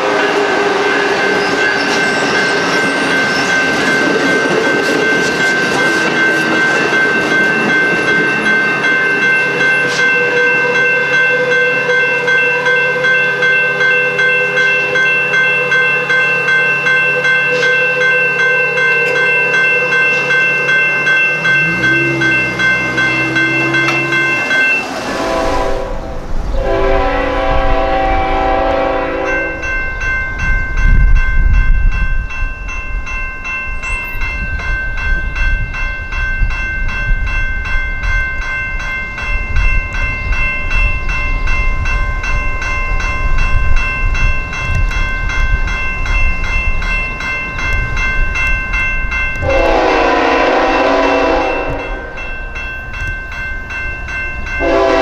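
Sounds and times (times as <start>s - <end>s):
train horn chord: 0.0s - 1.4s, 21.4s - 29.7s, 49.4s - 52.4s, 54.6s - 55.0s
train rumbling past: 0.0s - 55.0s
electronic crossing bell ringing: 0.2s - 25.6s, 27.8s - 55.0s.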